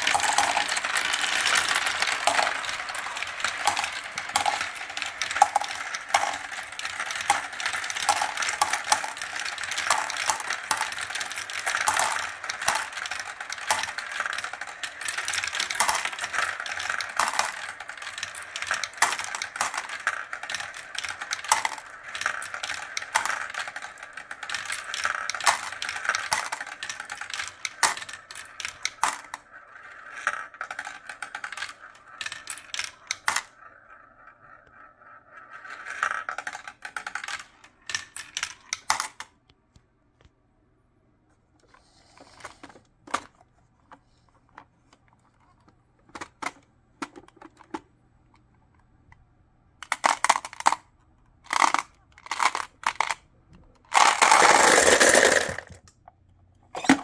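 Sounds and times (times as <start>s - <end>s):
marbles rattling down plastic tubes: 0.0s - 39.3s, 49.8s - 50.9s, 51.5s - 55.9s
marbles clacking in a plastic bin: 0.0s - 39.4s, 49.8s - 57.0s.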